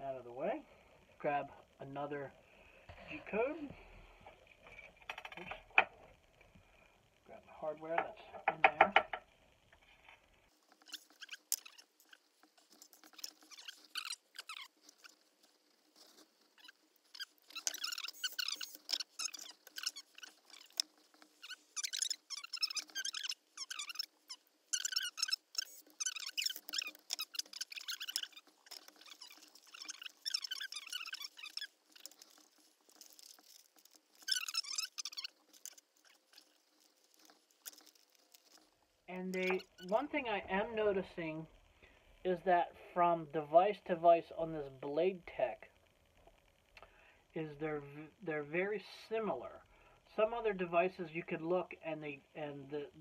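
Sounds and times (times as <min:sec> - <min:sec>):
plastic bag crinkling: 0:10.5 - 0:40.1
screws and plastic parts clicking: 0:10.6 - 0:39.9.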